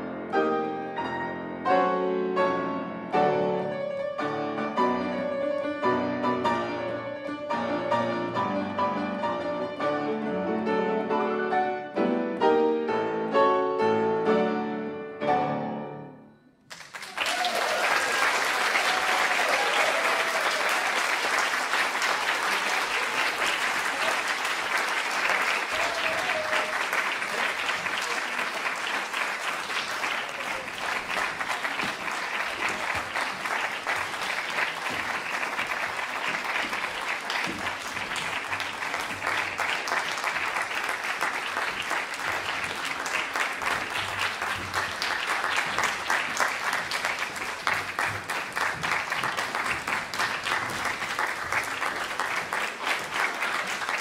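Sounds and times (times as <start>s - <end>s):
grand pianos playing: 0.0s - 16.6s, 21.2s - 54.0s
audience applause: 16.7s - 54.0s.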